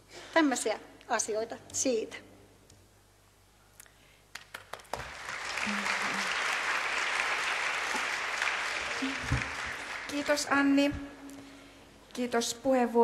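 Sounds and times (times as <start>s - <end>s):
audience applauding: 4.3s - 10.7s.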